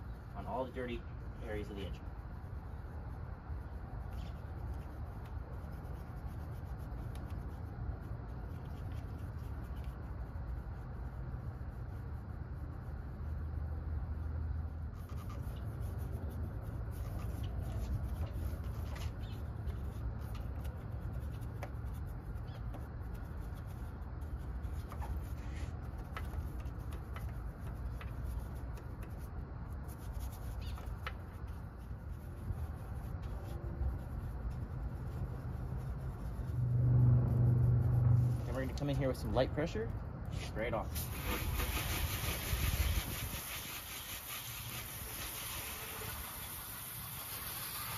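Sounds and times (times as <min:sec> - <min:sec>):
brush scrubbing metal parts: 0:00.0 - 0:13.5, 0:14.4 - 0:47.9
low rumble: 0:33.3 - 0:39.3.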